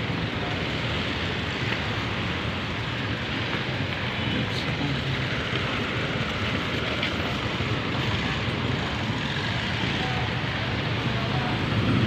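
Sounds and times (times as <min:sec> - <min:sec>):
road traffic noise: 0:00.0 - 0:12.0.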